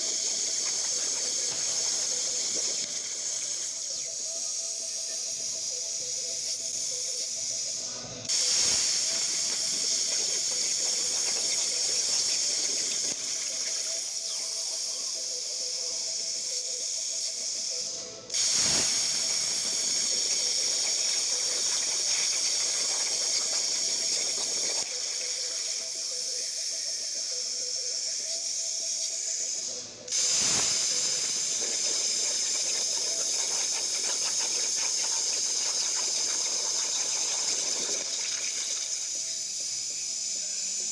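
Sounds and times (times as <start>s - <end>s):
plasma arc hissing: 8.3s - 13.9s, 17.0s - 24.9s, 29.0s - 40.9s.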